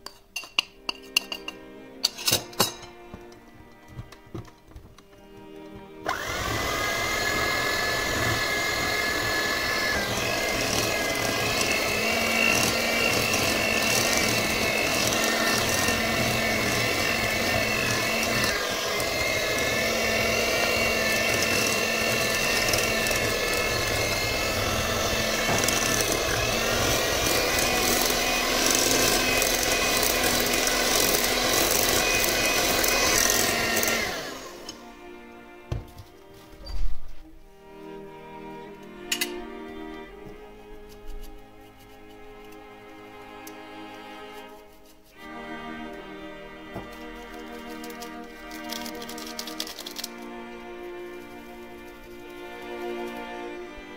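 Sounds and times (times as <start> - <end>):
electric hand mixer whining: 5.2 - 35.0, 46.7 - 50.2.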